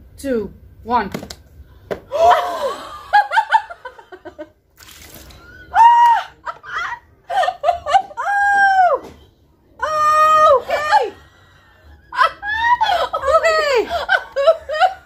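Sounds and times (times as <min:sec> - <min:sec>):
women laughing: 0:02.1 - 0:04.5, 0:05.3 - 0:08.9, 0:10.4 - 0:15.0.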